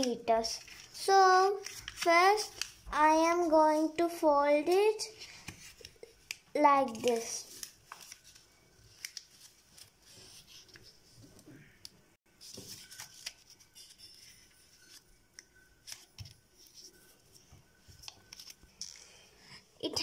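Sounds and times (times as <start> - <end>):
paper crinkling clicks: 0.0 - 2.8, 5.2 - 11.0, 17.9 - 19.0
paper being folded: 0.0 - 4.0, 4.6 - 11.4, 12.4 - 18.9.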